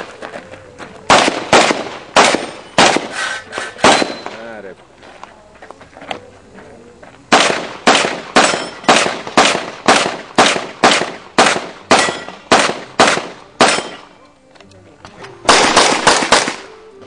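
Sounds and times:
handgun shots echoing: 0:01.1 - 0:03.2, 0:03.8 - 0:04.5, 0:07.3 - 0:14.2, 0:15.4 - 0:16.9.

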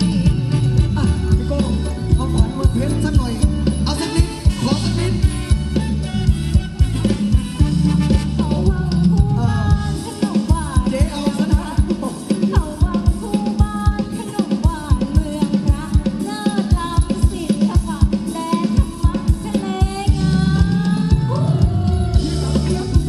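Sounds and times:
heavy bass: 0:00.0 - 0:11.2, 0:20.1 - 0:23.0
live band music: 0:00.0 - 0:23.0
steady drum beat: 0:00.0 - 0:23.0.

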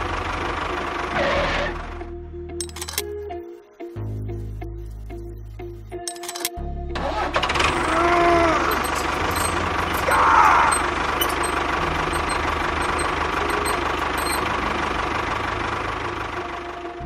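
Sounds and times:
tractor engine knocking rumble: 0:07.4 - 0:16.8.

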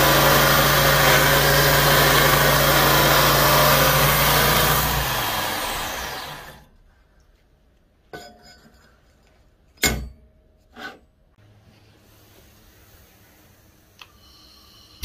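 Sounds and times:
belt grinder grinding steel: 0:00.0 - 0:06.6.

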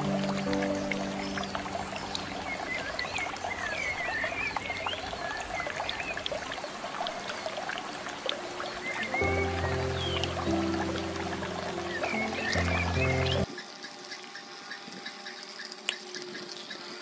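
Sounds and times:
water trickling and splashing: 0:00.0 - 0:17.0.

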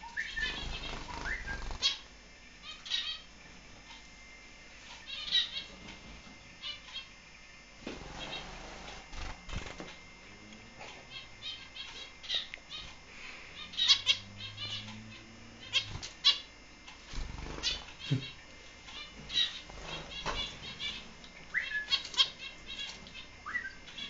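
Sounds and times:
finches calling: 0:00.0 - 0:04.0, 0:05.0 - 0:05.8, 0:11.1 - 0:24.0.

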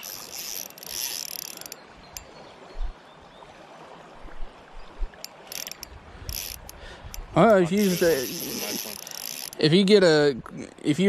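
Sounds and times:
fishing reel drag buzzing: 0:00.0 - 0:02.3, 0:05.2 - 0:09.6
river current: 0:00.0 - 0:11.0.

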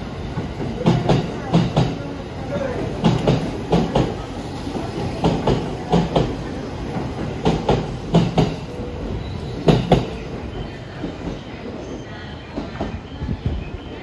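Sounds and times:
train rumble: 0:00.0 - 0:14.0
train wheels clacking over rail joint: 0:07.0 - 0:08.6.

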